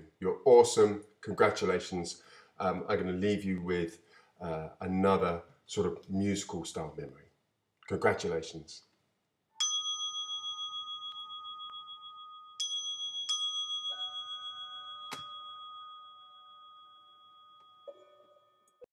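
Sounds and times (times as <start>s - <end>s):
metal chime ringing: 9.6s - 18.9s.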